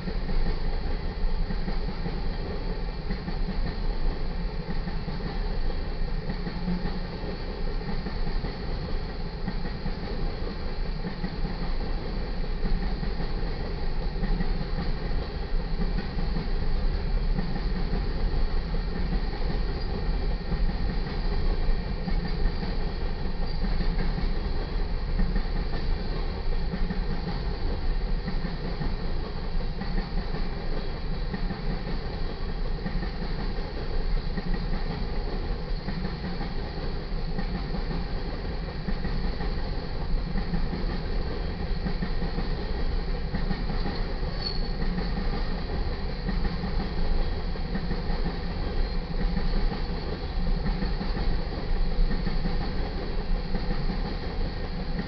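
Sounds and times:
freight train wheels rumbling: 0.0s - 55.0s.

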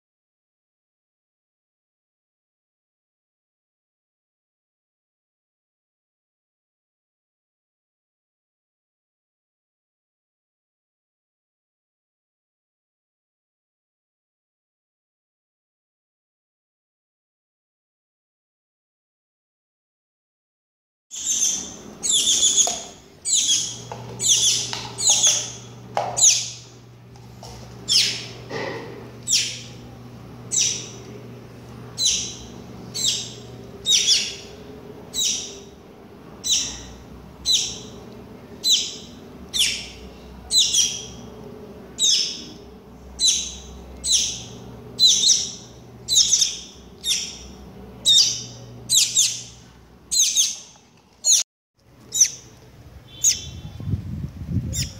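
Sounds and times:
bird chirping: 21.1s - 26.8s, 27.9s - 28.4s, 29.2s - 29.8s, 30.5s - 31.1s, 32.0s - 35.7s, 36.4s - 38.0s, 38.6s - 41.3s, 42.0s - 51.4s, 52.1s - 52.5s, 53.1s - 53.8s.

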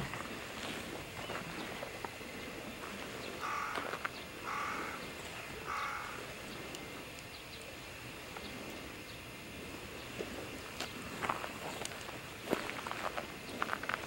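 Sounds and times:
crow cawing: 3.4s - 6.4s.

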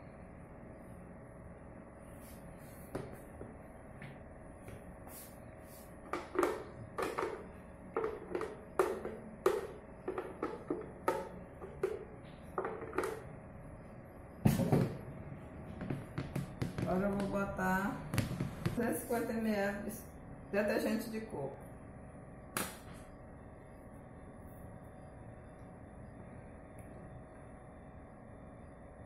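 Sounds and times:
hollow plastic knocks: 6.1s - 13.2s, 15.7s - 17.4s, 18.1s - 18.8s.

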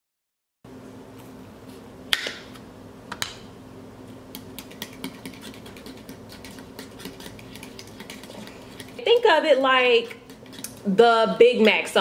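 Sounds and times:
faint steady hum: 0.7s - 12.0s
spoon scraping glass bowl: 4.6s - 9.2s, 10.0s - 10.9s.

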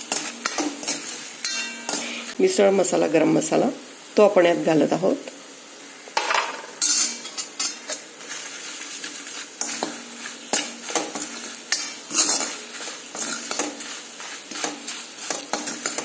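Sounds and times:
spoon scraping metal pan: 0.0s - 2.3s, 6.8s - 16.0s
spices sizzling in oil: 0.0s - 16.0s.

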